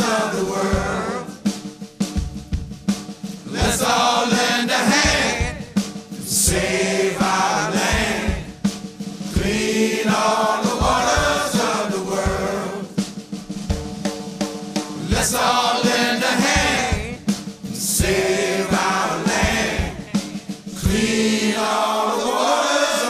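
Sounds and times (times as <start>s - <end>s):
group singing chant-like chorus: 0.0s - 1.7s, 3.4s - 13.2s, 14.9s - 23.0s
drum-kit beat: 0.0s - 23.0s.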